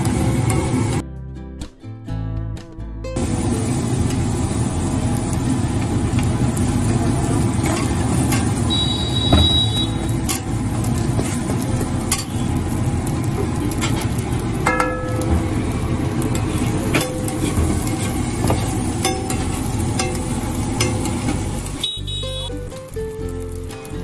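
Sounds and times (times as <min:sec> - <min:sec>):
steady low rumble: 0:03.1 - 0:21.8
bread sizzling in oil: 0:03.2 - 0:24.0
metal spatula scraping and tapping: 0:07.6 - 0:08.6, 0:10.2 - 0:12.4, 0:13.3 - 0:21.5.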